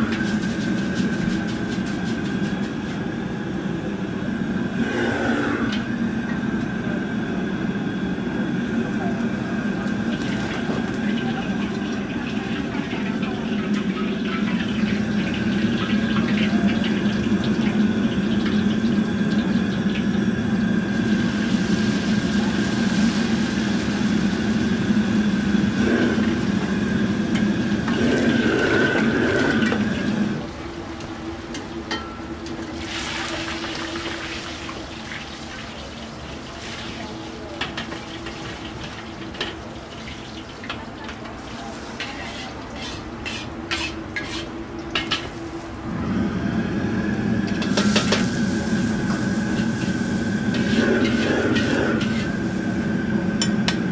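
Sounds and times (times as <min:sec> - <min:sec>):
gas burner humming: 0:00.0 - 0:53.9
hot oil sizzling and splashing: 0:10.0 - 0:20.2, 0:20.9 - 0:26.0, 0:32.6 - 0:37.1, 0:37.7 - 0:45.7, 0:47.5 - 0:52.9.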